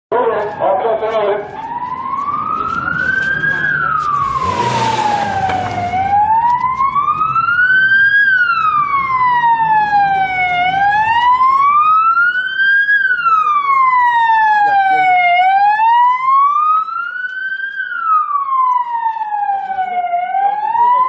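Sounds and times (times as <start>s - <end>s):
emergency siren wailing: 0.1s - 21.0s.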